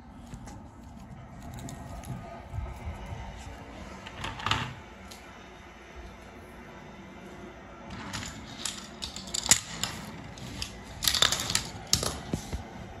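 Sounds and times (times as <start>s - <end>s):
plastic toys clicking on wooden track: 8.0s - 12.3s.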